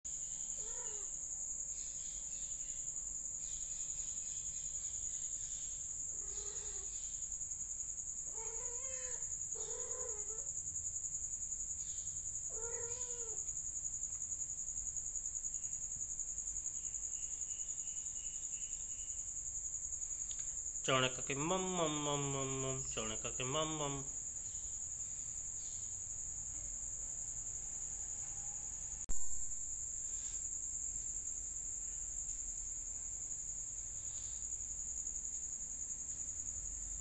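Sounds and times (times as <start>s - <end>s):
crickets chirring: 0.1s - 37.0s
cats meowing: 0.5s - 1.1s, 6.1s - 6.9s, 8.3s - 10.5s, 12.5s - 13.5s.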